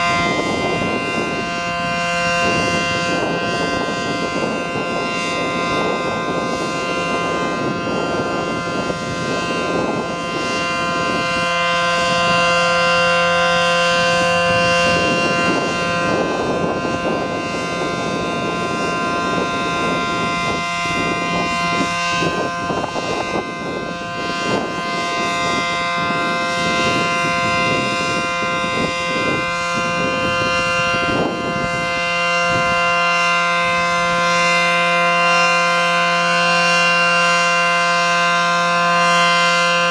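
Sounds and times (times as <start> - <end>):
rotating siren two-note chord: 0.0 - 39.9.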